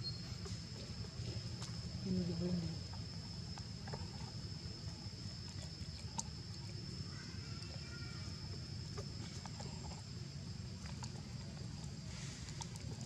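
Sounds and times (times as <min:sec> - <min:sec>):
faint animal call: 0:06.2 - 0:10.0.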